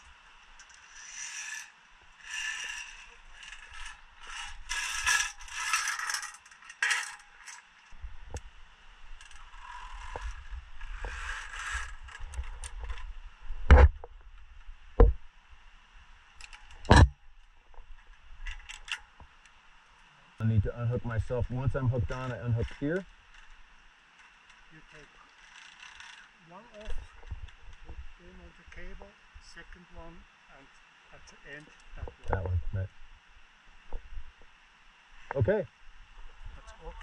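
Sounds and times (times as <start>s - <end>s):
metal climbing gear rattling: 0.6s - 8.0s, 24.2s - 27.2s.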